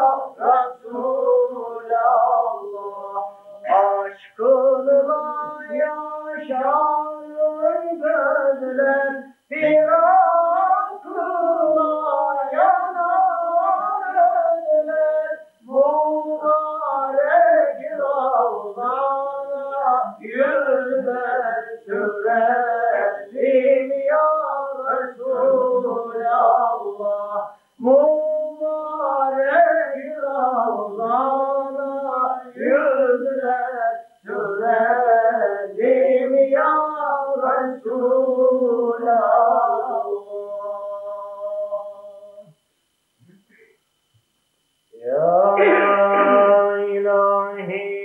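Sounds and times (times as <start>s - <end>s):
person singing ornamented phrases: 0.0s - 42.6s, 44.9s - 48.0s.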